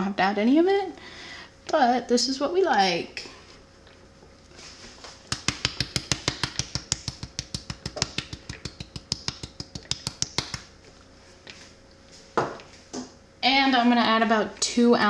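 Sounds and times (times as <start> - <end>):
spice jar shaking clicks: 5.4 - 10.7.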